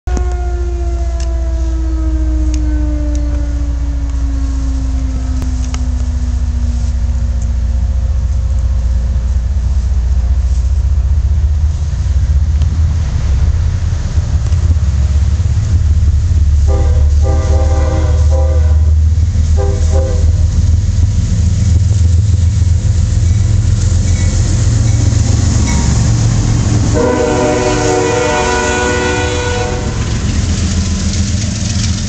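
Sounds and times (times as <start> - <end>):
humming tone falling in pitch: 0.1 - 9.2
distant train rumble: 0.1 - 32.0.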